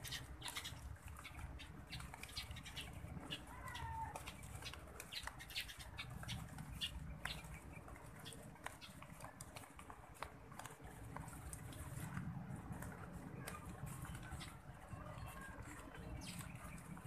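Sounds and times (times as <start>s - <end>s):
sparrows chirping: 0.0s - 9.9s, 13.4s - 17.0s.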